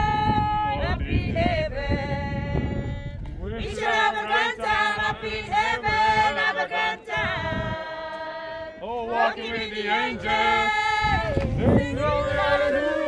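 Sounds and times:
choir singing long notes: 3.6s - 13.0s.

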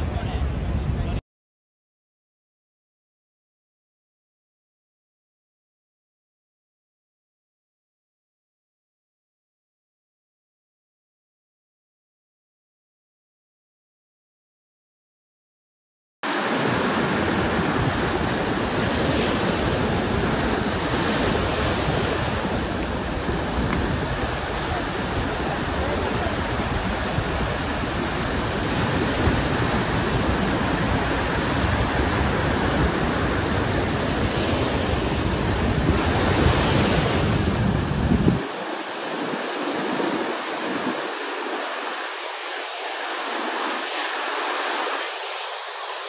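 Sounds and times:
wind rumbling on microphone: 0.0s - 1.2s, 16.3s - 41.8s
sea surf breaking: 16.2s - 46.0s.

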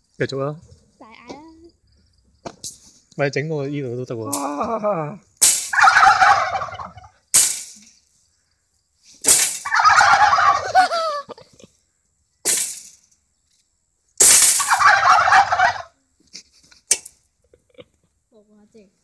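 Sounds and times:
turkeys gobbling: 5.4s - 7.2s, 9.3s - 11.7s, 14.2s - 16.0s.

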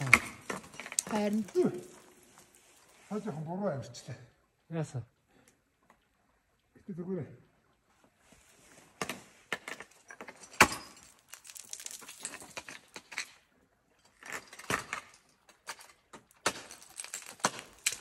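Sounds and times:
metal clinking: 0.0s - 2.9s, 10.1s - 13.3s, 14.1s - 18.0s
ice scraping and clattering: 0.0s - 3.2s, 9.5s - 18.0s
ice tools striking ice: 16.1s - 18.0s.

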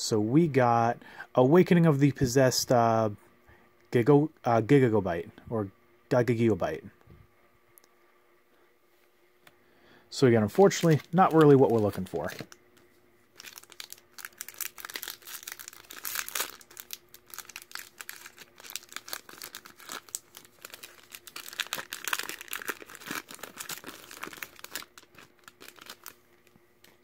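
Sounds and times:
foil wrapper crinkling and tearing: 10.5s - 12.6s, 13.3s - 27.0s.

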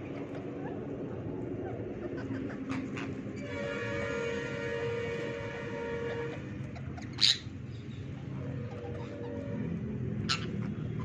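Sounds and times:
parakeet squawk: 7.0s - 7.5s, 10.2s - 11.0s.

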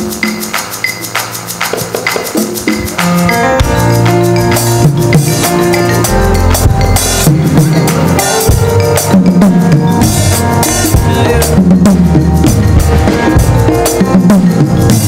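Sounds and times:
church band music: 0.0s - 15.0s
drum kit beat: 0.0s - 15.0s.

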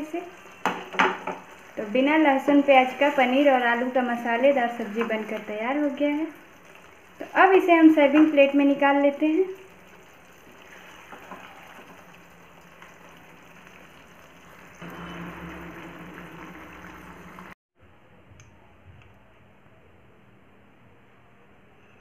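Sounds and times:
curry bubbling in pan: 0.0s - 17.6s
low hum: 14.7s - 18.7s.

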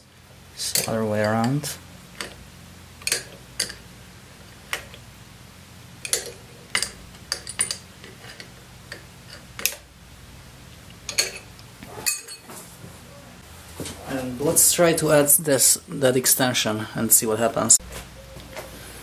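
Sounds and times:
metal tools clinking on fittings: 0.7s - 2.3s, 3.0s - 3.8s, 6.0s - 9.8s, 11.1s - 12.5s.

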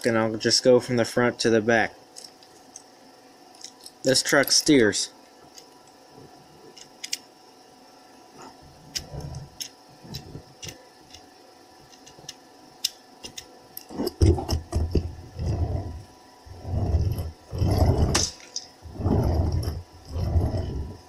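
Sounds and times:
plastic tires rolling on table: 13.9s - 21.0s.

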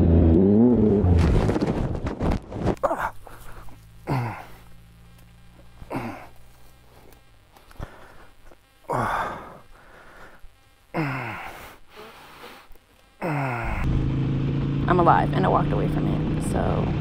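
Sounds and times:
low steady hum: 0.0s - 17.0s
person groaning in pain: 2.8s - 4.7s, 5.8s - 6.4s, 8.8s - 9.7s, 10.9s - 11.8s, 13.2s - 13.9s.

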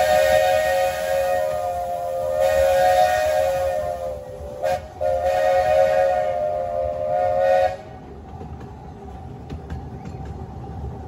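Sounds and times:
train horn chord: 0.0s - 8.0s.

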